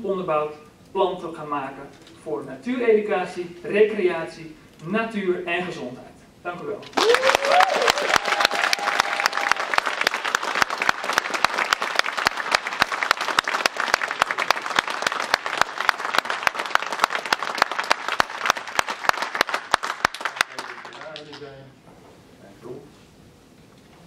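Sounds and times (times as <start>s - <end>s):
audience applauding: 6.9s - 21.5s.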